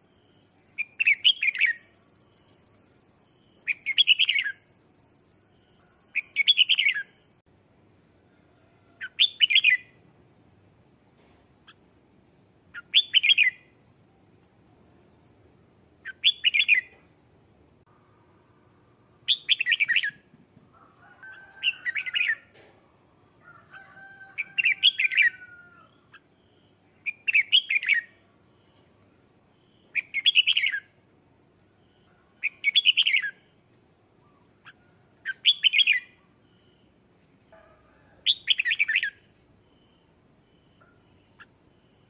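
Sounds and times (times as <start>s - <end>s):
bird singing: 0.0s - 7.3s, 9.0s - 10.0s, 12.7s - 13.8s, 16.0s - 17.0s, 19.2s - 20.2s, 24.1s - 31.0s, 31.6s - 42.0s.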